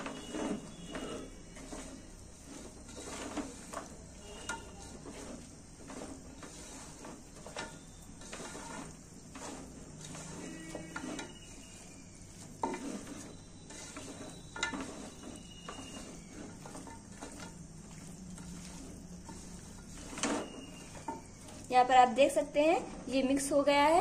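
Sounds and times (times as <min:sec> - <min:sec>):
wet squishing of meat: 0:15.8 - 0:21.7.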